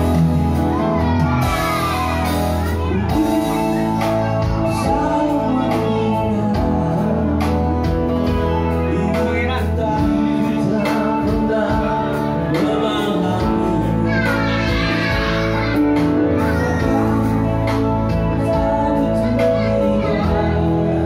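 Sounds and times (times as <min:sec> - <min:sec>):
live band playing: 0:00.0 - 0:21.0
person singing: 0:00.0 - 0:21.0.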